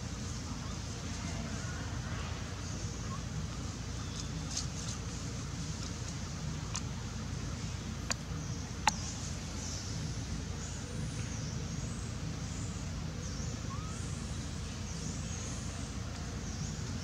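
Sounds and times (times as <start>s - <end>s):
low outdoor rumble: 0.0s - 17.0s
faint high chirps: 13.2s - 14.9s.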